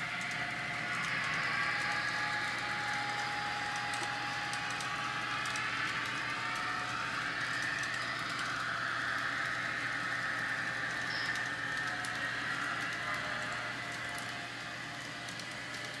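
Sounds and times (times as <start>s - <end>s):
wheels clicking over track joints: 0.0s - 10.2s
electric motor whine: 0.0s - 16.0s.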